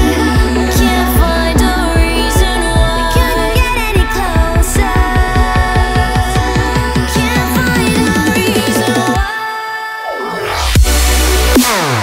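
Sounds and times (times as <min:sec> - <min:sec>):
kick-drum beat: 0:00.0 - 0:09.3
sliding synth chords: 0:00.0 - 0:09.3.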